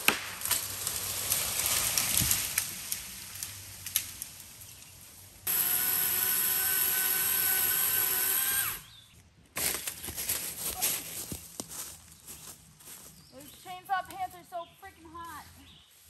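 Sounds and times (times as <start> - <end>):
chainsaw cutting wood: 5.4 - 9.0.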